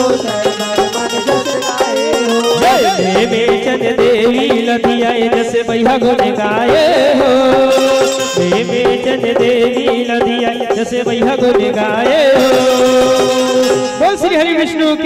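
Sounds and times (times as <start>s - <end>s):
devotional melody with pitch bends: 0.0s - 4.4s
hand drum rhythm: 0.0s - 14.4s.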